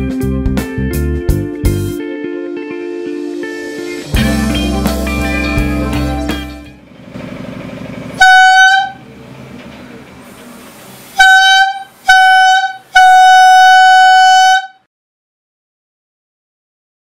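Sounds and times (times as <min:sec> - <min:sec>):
balloon trumpet honking: 0:08.2 - 0:09.0, 0:11.2 - 0:14.8.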